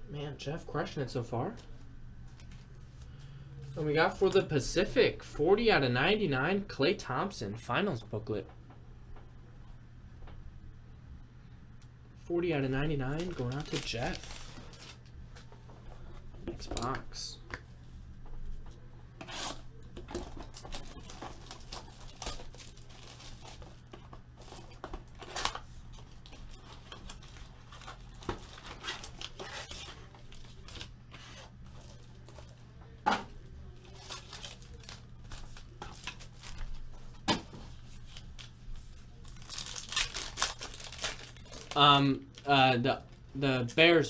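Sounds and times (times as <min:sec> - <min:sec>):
sharp packaging clicks: 0:39.2 - 0:42.5.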